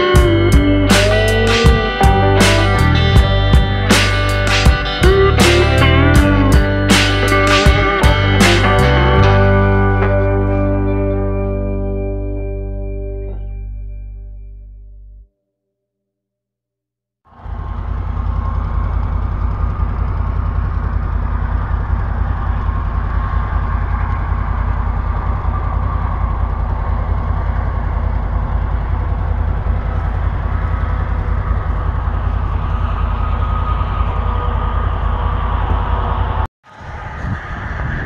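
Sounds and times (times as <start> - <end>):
distant tractor engine: 0.0 - 11.1, 17.3 - 38.0
wind rumble on microphone: 30.4 - 38.0.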